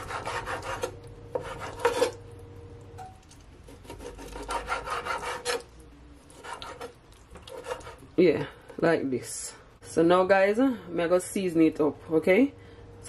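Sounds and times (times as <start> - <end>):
blade rasping on wooden board: 0.0 - 2.2, 3.7 - 5.6, 6.4 - 8.0
knife sawing through raw meat: 0.0 - 2.2, 3.7 - 5.6, 6.4 - 6.9, 7.5 - 8.0.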